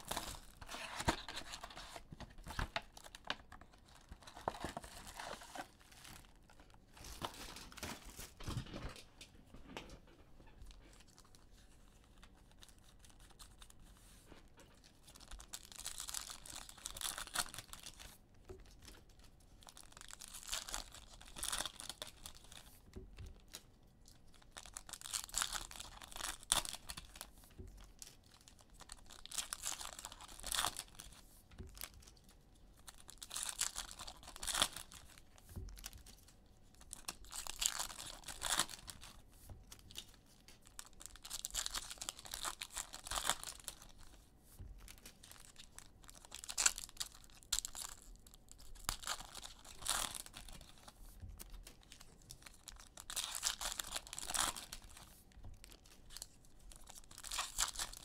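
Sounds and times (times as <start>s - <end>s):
wrappers tearing and crinkling: 0.0s - 8.6s, 15.0s - 18.1s, 18.8s - 22.7s, 24.2s - 27.3s, 28.2s - 32.2s, 32.8s - 36.3s, 36.9s - 39.2s, 39.8s - 44.1s, 44.9s - 58.0s.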